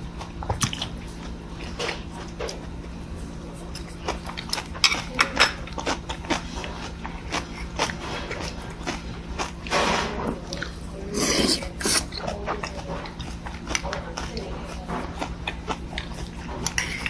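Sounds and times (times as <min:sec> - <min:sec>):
eating sounds: 0:00.0 - 0:17.0
slurping: 0:05.6 - 0:17.0.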